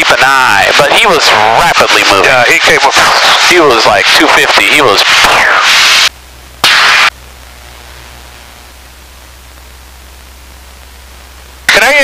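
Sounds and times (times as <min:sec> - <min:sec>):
headset static hiss: 0:00.0 - 0:12.0
faint low hum: 0:06.1 - 0:12.0.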